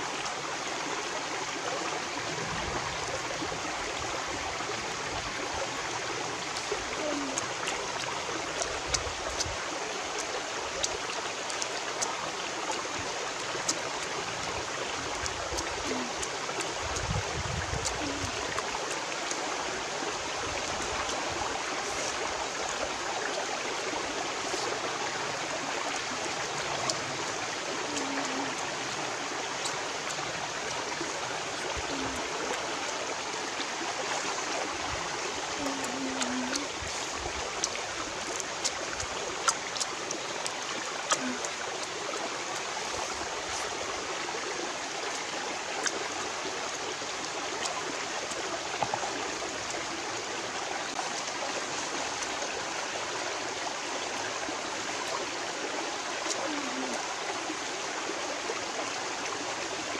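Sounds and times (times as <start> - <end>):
stream running over rocks: 0.0 - 59.9.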